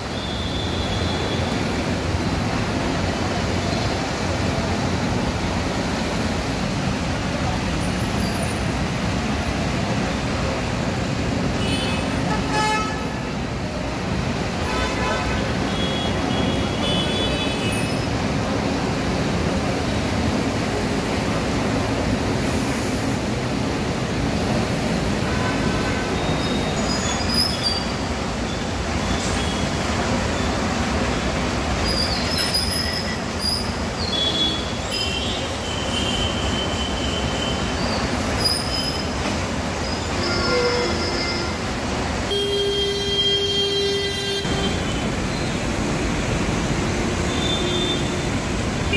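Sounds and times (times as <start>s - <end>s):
road traffic: 0.0s - 48.9s
vehicle horns honking: 11.6s - 13.3s, 14.6s - 18.0s, 25.2s - 26.7s, 42.3s - 45.1s, 47.3s - 48.9s.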